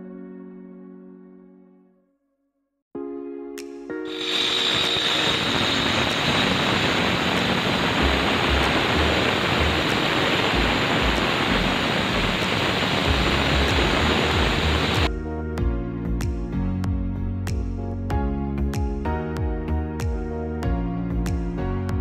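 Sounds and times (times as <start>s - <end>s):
angle grinder cutting stone: 4.1s - 15.1s.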